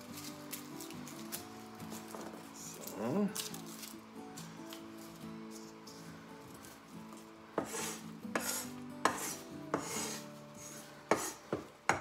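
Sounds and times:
knife scraping board: 7.6 - 12.0.

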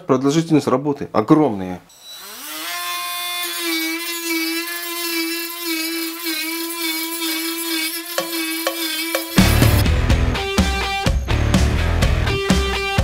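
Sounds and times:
rotary tool sanding wood: 2.2 - 9.8.

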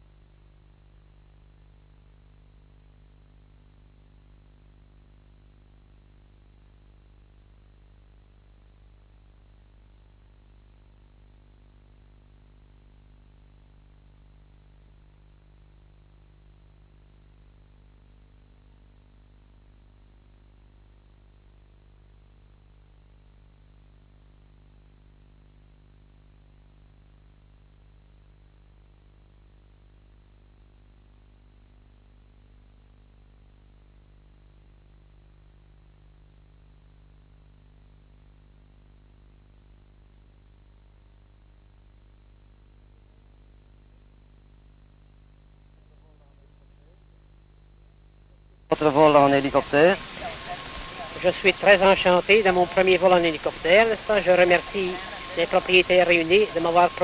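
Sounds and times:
faint hiss: 0.0 - 57.0
steady low hum: 0.0 - 57.0
thin high whines: 48.7 - 57.0.

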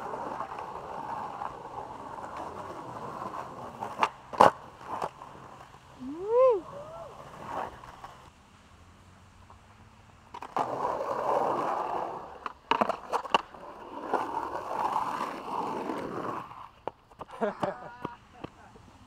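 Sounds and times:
skateboard clacks: 0.0 - 5.8, 10.3 - 18.9
skateboard wheels rolling: 0.0 - 19.0.

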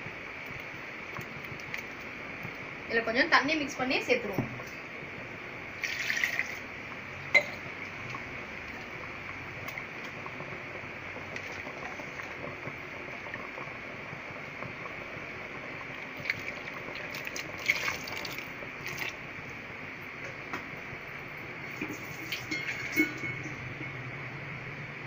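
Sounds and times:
steady hiss: 0.0 - 25.0
water splashing and dripping: 16.0 - 19.2.

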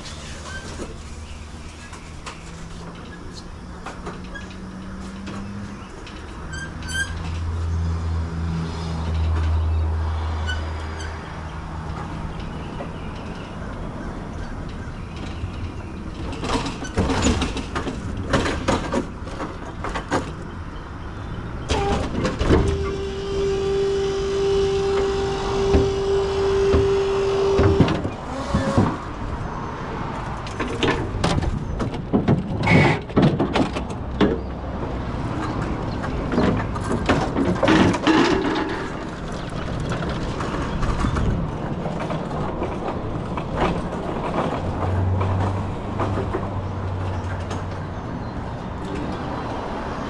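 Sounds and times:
metal hand truck rattling: 12.0 - 20.4, 35.6 - 47.2.

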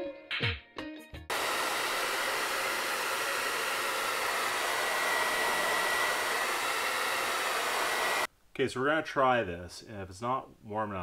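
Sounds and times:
music: 0.0 - 1.3
hair dryer blowing: 1.3 - 8.3.

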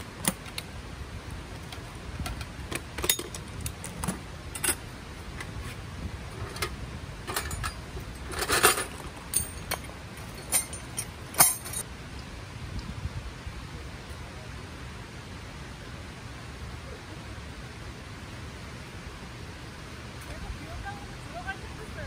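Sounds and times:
scraping rustle: 1.5 - 11.8
metal clicks and clanks: 1.6 - 4.8, 6.4 - 11.8.

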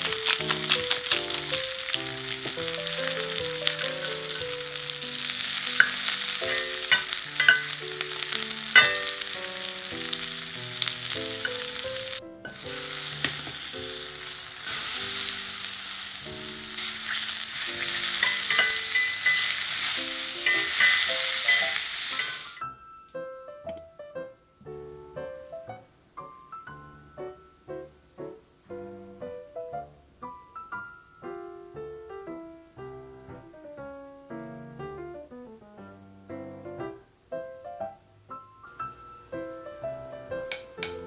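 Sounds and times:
metal tongs clinking on pan: 0.0 - 7.8, 8.6 - 9.4, 17.1 - 22.6
vegetables sizzling in a skillet: 0.0 - 22.8
light piano music: 0.0 - 41.0.

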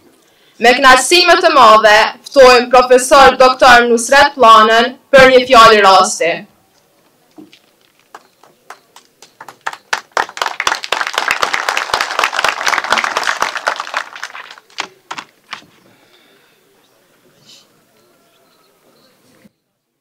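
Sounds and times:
audience applauding: 8.0 - 15.4.

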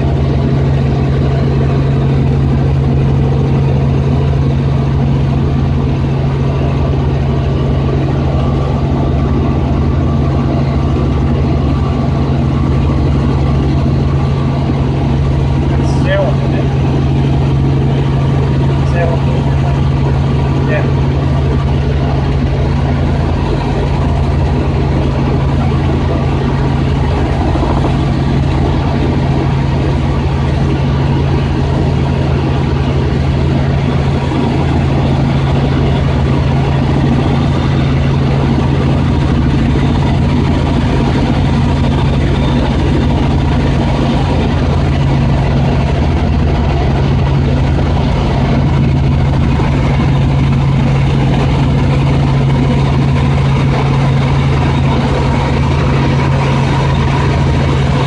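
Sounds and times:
helicopter engine and rotors droning: 0.0 - 58.0
airflow noise: 14.0 - 42.3.

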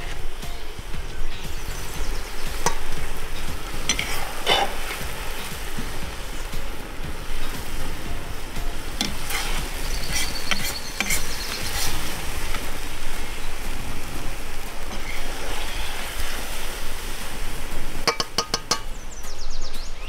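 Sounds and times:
meat sizzling in a cauldron: 0.0 - 19.0
metal skimmer clinking and scraping: 2.5 - 12.8, 18.0 - 19.0.

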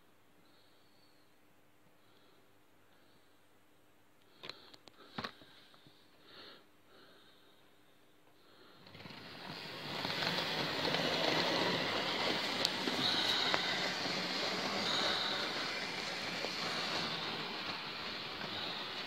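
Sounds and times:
model train motor and wheels rushing: 8.8 - 19.0.

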